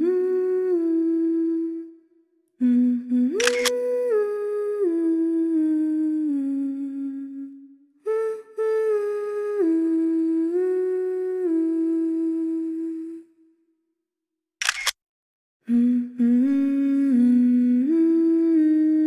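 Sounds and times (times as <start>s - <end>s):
person humming a melody: 0.0s - 13.4s, 15.7s - 19.0s
sharp clicks: 3.4s - 3.7s, 14.6s - 15.0s.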